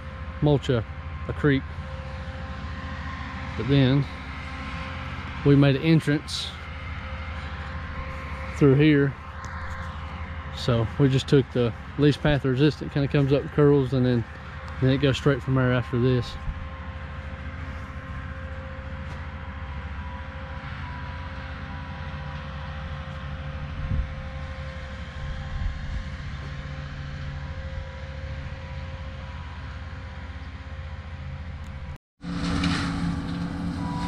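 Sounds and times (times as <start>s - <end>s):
faint whine: 0.0s - 29.8s
diesel engine running: 0.0s - 34.0s.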